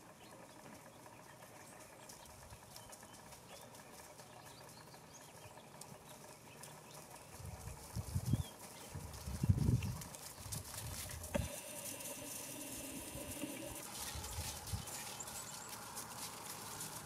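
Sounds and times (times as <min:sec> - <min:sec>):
turkeys chirping: 0:11.2 - 0:17.0.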